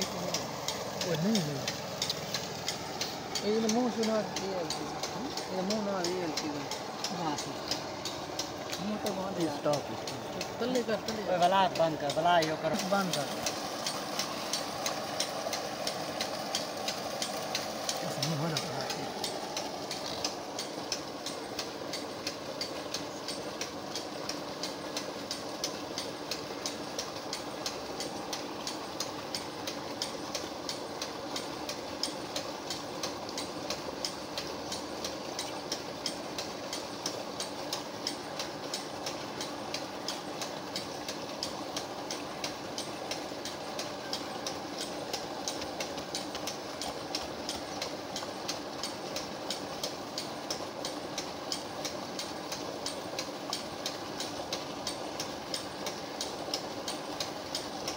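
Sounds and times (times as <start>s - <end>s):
single-cylinder engine idling: 0.0s - 40.9s.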